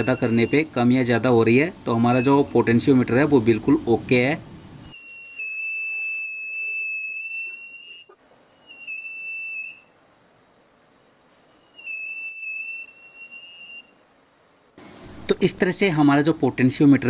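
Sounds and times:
high-pitched buzzer beep: 0:04.9 - 0:09.8.

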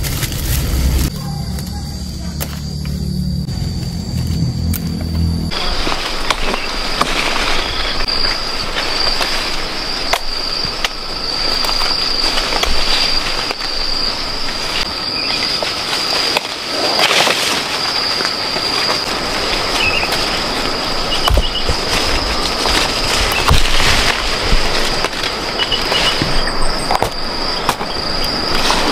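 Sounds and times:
leaves and branches rustling: 0:00.0 - 0:28.9
high-pitched drone: 0:00.6 - 0:05.9.

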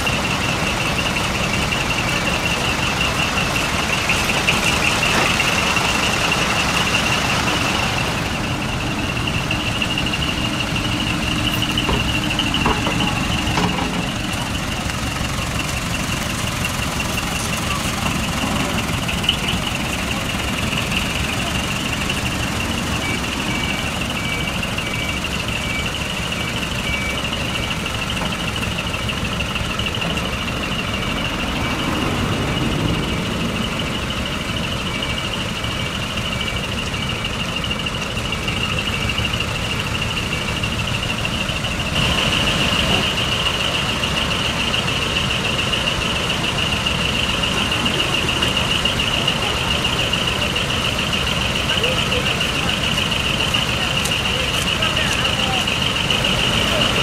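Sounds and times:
diesel truck engines idling: 0:00.0 - 0:57.0
faint repeating beep: 0:17.0 - 0:28.2.

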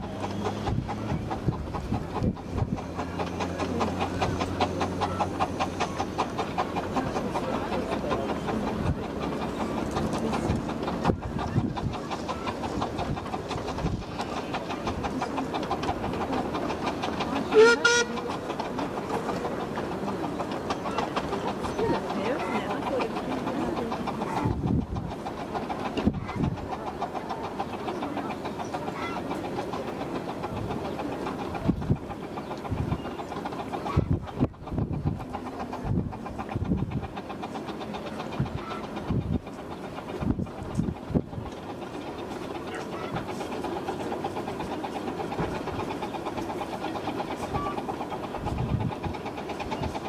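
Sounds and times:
steam locomotive running: 0:00.0 - 0:50.0
wind rumbling on microphone: 0:00.5 - 0:03.0, 0:08.7 - 0:14.2, 0:24.3 - 0:25.2, 0:31.5 - 0:33.2, 0:33.9 - 0:37.2, 0:38.3 - 0:41.6, 0:48.4 - 0:50.0.

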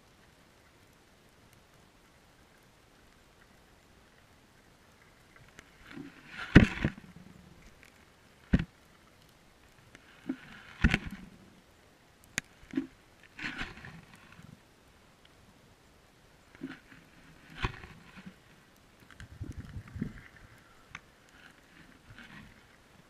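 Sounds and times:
underwater knocks and thuds: 0:06.5 - 0:07.0.

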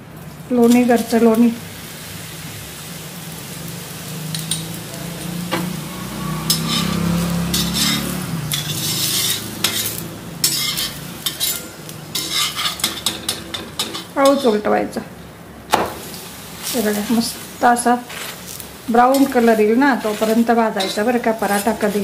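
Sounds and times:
oil sizzling in a pan: 0:00.0 - 0:22.0
metal spatula scraping a pan: 0:05.6 - 0:14.6, 0:18.0 - 0:22.0.

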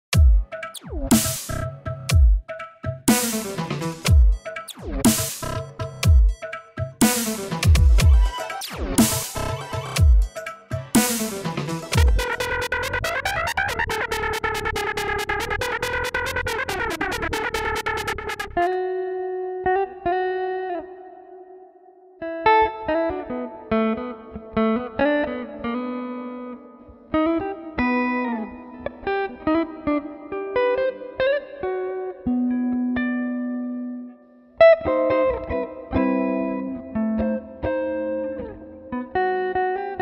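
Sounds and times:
plucked guitar-like melody: 0:00.1 - 0:40.0
fast pulsing music over held chord: 0:07.0 - 0:14.2.

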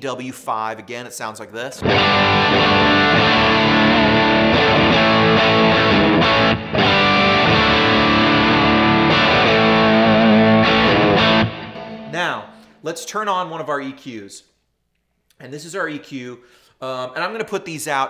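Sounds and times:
distorted electric guitar: 0:01.8 - 0:12.7.

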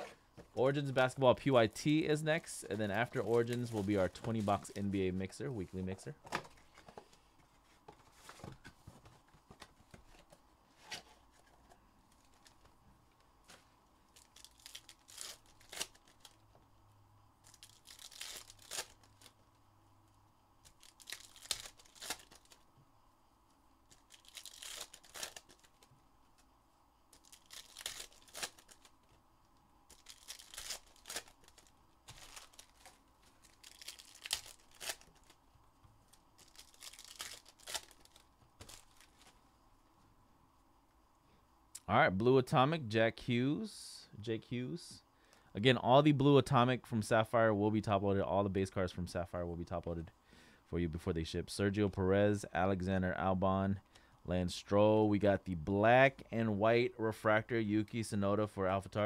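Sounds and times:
foil wrappers tearing and crinkling: 0:14.1 - 0:16.4, 0:17.5 - 0:19.3, 0:20.7 - 0:22.6, 0:23.9 - 0:25.9, 0:27.1 - 0:29.0, 0:29.9 - 0:35.4, 0:36.1 - 0:39.4.

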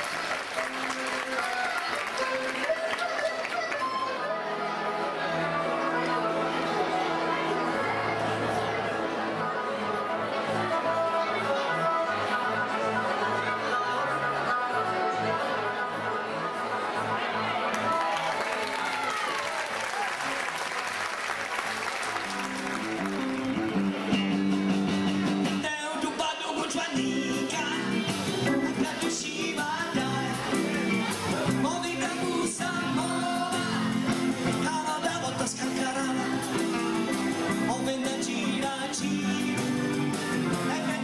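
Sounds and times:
applause: 0:00.0 - 0:04.0, 0:17.7 - 0:23.9
band with electric guitar: 0:00.0 - 0:41.0.

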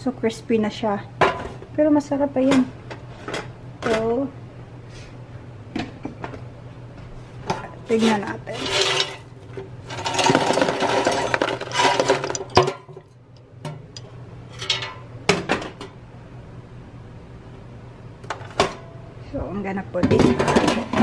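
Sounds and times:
fries rattling onto paper plate: 0:08.0 - 0:12.9.

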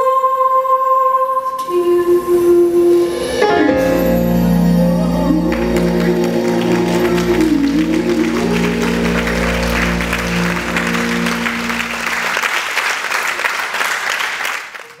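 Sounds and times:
foxtrot music: 0:02.8 - 0:12.5
audience applauding: 0:05.1 - 0:15.0.

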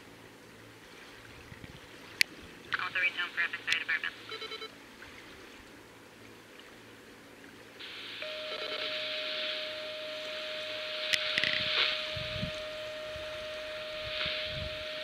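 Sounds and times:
radio hiss: 0:02.7 - 0:04.7, 0:07.8 - 0:15.0
short electronic beep: 0:04.3 - 0:04.7, 0:08.2 - 0:15.0
steady single-pitched tone: 0:08.1 - 0:15.0.

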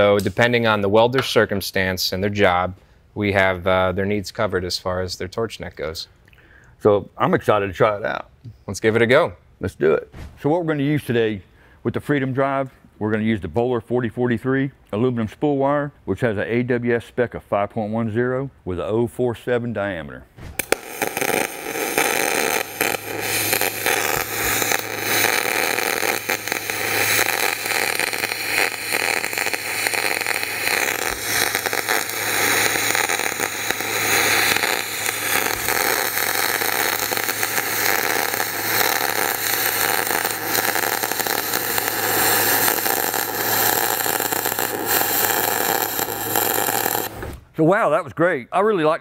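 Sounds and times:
welding arc crackling hiss: 0:20.4 - 0:47.4.

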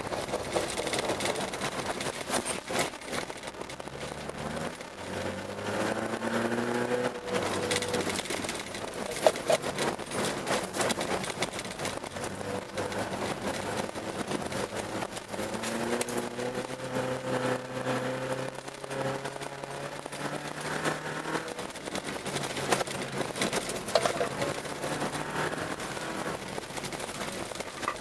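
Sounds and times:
rattling and knocking: 0:00.0 - 0:04.4, 0:07.3 - 0:16.2, 0:21.0 - 0:28.0
car engine accelerating: 0:00.0 - 0:28.0.

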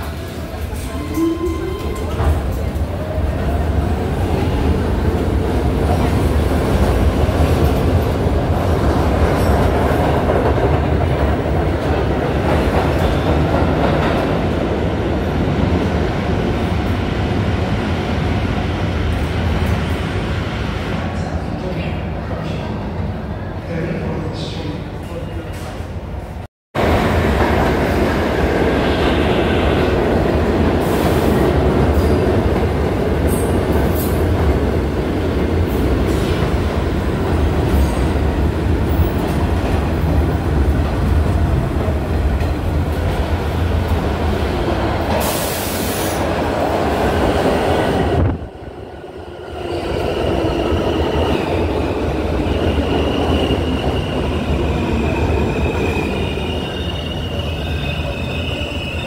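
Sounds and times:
subway train wheels rumbling: 0:00.0 - 0:59.0
train wheels squealing: 0:52.5 - 0:59.0.

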